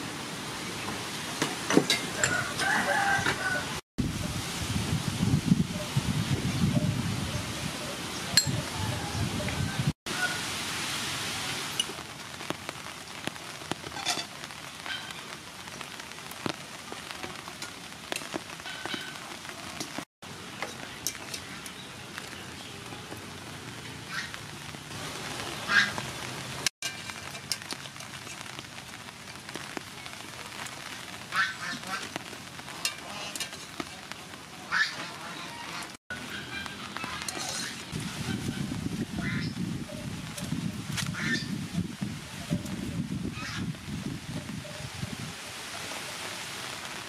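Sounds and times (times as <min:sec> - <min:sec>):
ducks quacking: 0:34.6 - 0:37.4.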